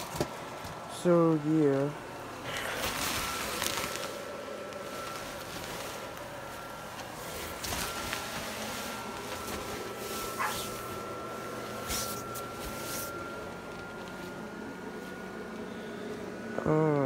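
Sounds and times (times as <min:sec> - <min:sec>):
blower fan humming: 0:00.0 - 0:17.0.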